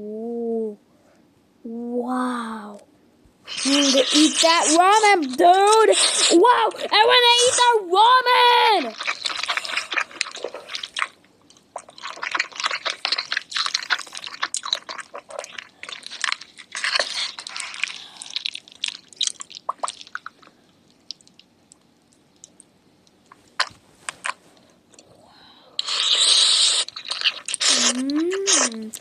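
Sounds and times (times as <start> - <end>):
crunchy chewing: 8.8 - 25.1, 25.8 - 29.0
mouth clicks: 25.8 - 29.0.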